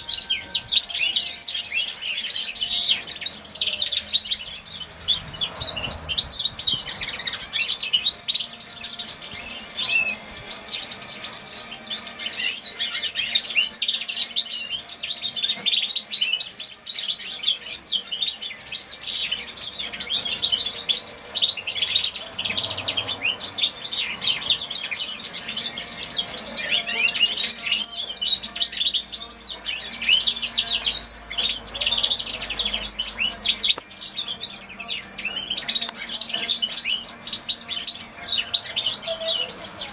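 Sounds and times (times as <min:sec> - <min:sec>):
finch singing high chirps and trills: 0:00.0 - 0:39.9.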